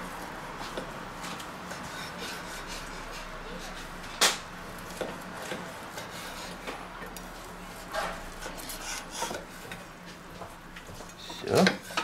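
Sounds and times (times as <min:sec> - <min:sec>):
knife sawing through meat: 0:01.8 - 0:03.8.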